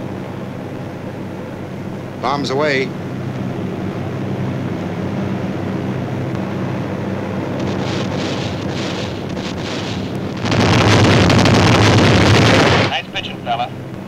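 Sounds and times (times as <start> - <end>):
aircraft engines droning: 0.0 - 14.0
crackling hiss: 7.5 - 13.6.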